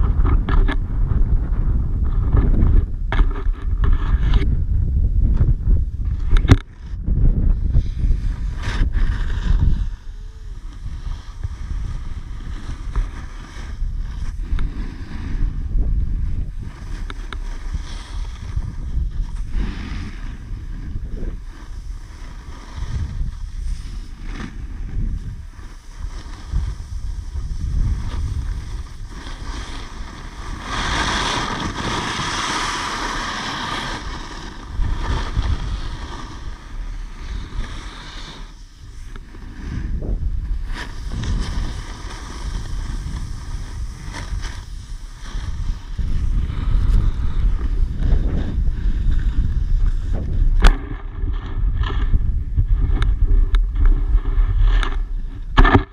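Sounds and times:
snowboard sliding over snow: 0:00.0 - 0:55.9
wind buffeting microphone: 0:00.0 - 0:55.9.

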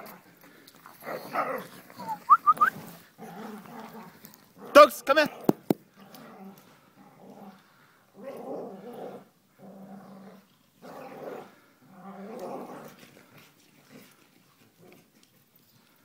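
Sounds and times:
dogs growling: 0:02.9 - 0:15.2.

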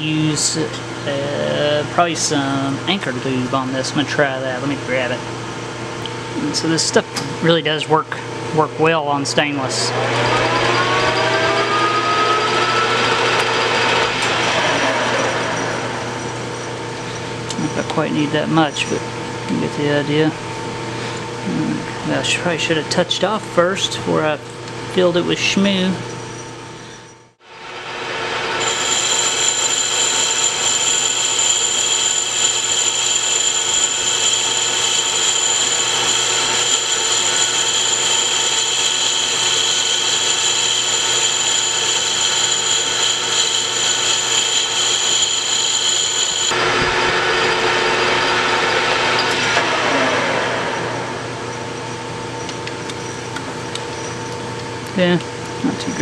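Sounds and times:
metal lathe cutting whine: 0:06.3 - 0:20.0, 0:27.4 - 0:54.4
lathe spindle winding down: 0:08.8 - 0:18.9, 0:27.4 - 0:52.0.

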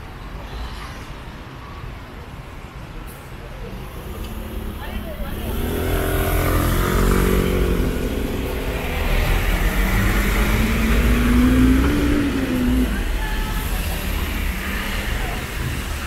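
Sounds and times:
traffic rumble on wet road: 0:00.0 - 0:16.0
bus engine accelerating: 0:03.1 - 0:16.0.

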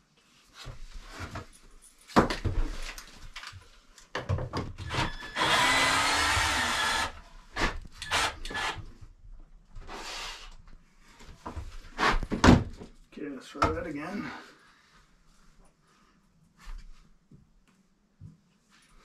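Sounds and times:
cordless drill into wood: 0:04.8 - 0:08.9.

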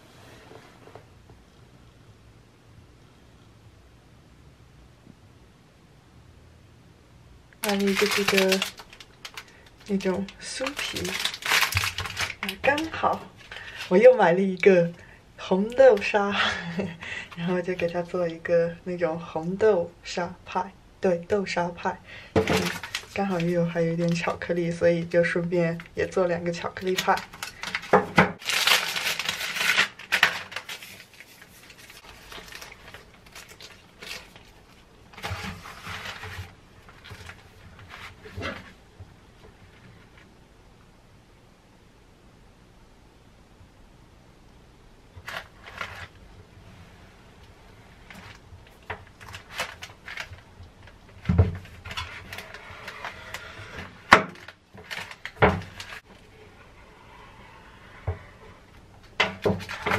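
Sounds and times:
paper rustling: 0:07.6 - 0:14.0, 0:22.4 - 0:24.4, 0:26.7 - 0:38.8, 0:45.2 - 0:46.2, 0:48.0 - 0:56.3
plastic packaging crinkling: 0:07.6 - 0:14.2, 0:22.4 - 0:24.4, 0:25.7 - 0:38.7, 0:45.2 - 0:46.2, 0:48.0 - 0:56.2, 0:59.1 - 0:59.9.

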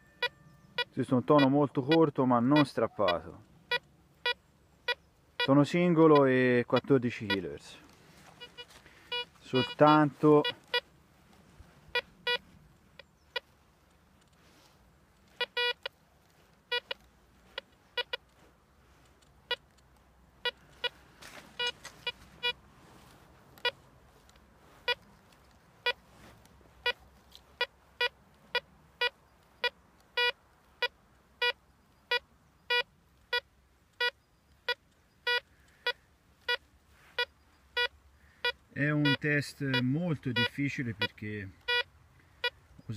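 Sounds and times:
metal detector short beeps: 0:00.0 - 0:05.5, 0:08.4 - 0:10.9, 0:11.9 - 0:13.5, 0:15.3 - 0:16.0, 0:16.7 - 0:18.3, 0:21.6 - 0:22.6, 0:27.6 - 0:42.8.

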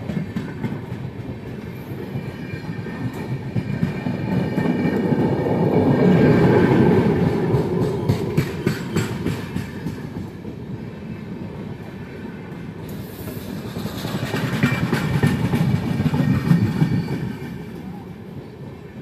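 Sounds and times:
train wheels rumbling on rails: 0:00.0 - 0:19.0
wheels clicking over rail joints: 0:12.9 - 0:17.9.

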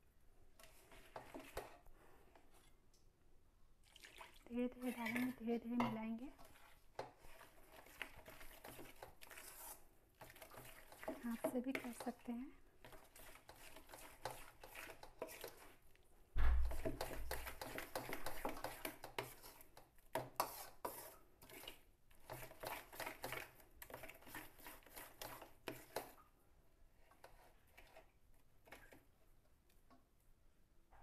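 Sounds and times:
spoon scraping batter in steel bowl: 0:00.6 - 0:02.7, 0:04.7 - 0:15.9, 0:16.6 - 0:26.3, 0:26.9 - 0:29.1
low thump: 0:16.4 - 0:16.8.

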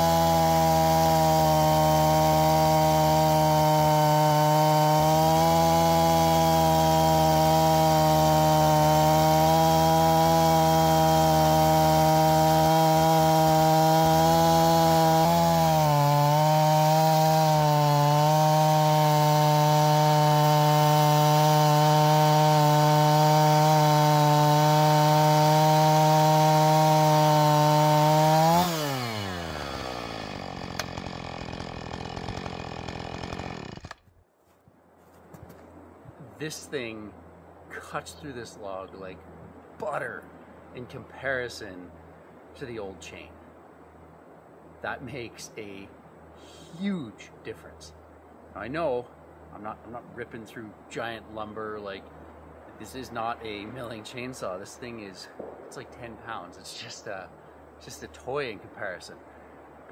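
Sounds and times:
chainsaw cutting log: 0:00.0 - 0:34.2.

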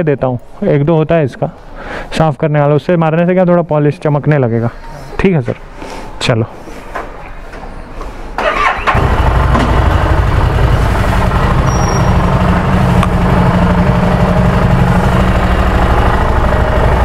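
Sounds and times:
motorcycle engine running: 0:08.9 - 0:17.0.

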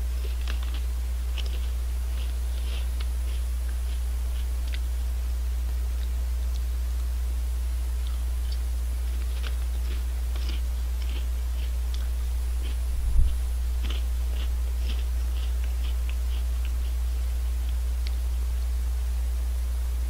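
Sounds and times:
chewing crunchy chips: 0:00.0 - 0:05.0, 0:08.0 - 0:18.3
low electrical hum: 0:00.0 - 0:20.0.

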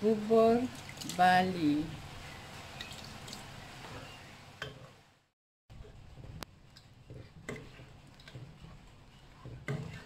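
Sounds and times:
ladle stirring porridge: 0:05.7 - 0:10.0.

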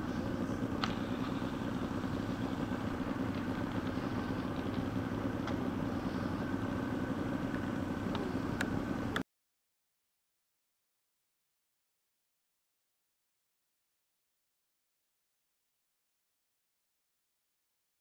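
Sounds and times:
electric motor high whine: 0:00.0 - 0:09.2
model plane engine rumble: 0:00.0 - 0:09.2
faint ticks: 0:07.5 - 0:09.2.

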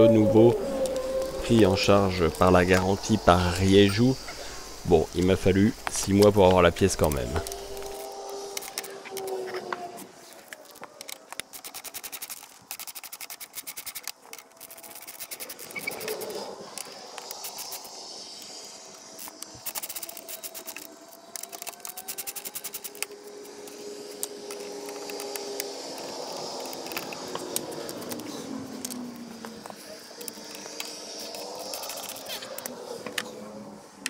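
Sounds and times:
ratchet wrench clicking: 0:11.0 - 0:18.5, 0:19.2 - 0:29.0, 0:30.2 - 0:32.7.

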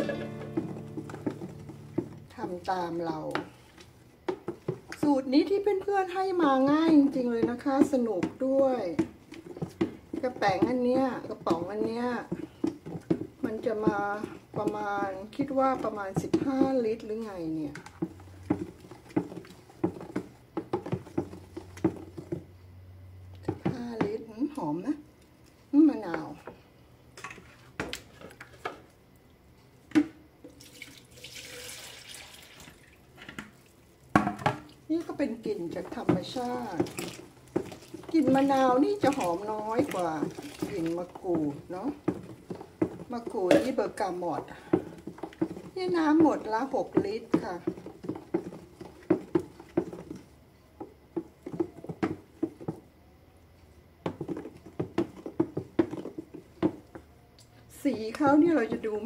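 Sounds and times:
spoon knocking plastic bucket: 0:00.1 - 0:02.5, 0:06.4 - 0:22.4, 0:34.2 - 0:52.9, 0:54.0 - 0:57.0
wooden spoon stirring foamy liquid: 0:00.5 - 0:22.5, 0:30.6 - 0:33.9, 0:34.7 - 0:53.0, 0:53.6 - 0:57.1, 0:57.7 - 0:59.0
liquid soap dripping: 0:30.4 - 0:33.0, 0:36.0 - 0:43.1.

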